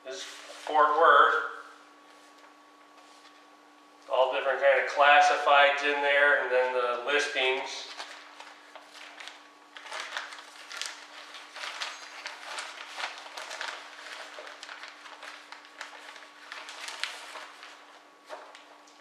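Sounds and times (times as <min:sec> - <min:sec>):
faint hum: 0:00.0 - 0:19.0
paper rustling: 0:07.5 - 0:19.0.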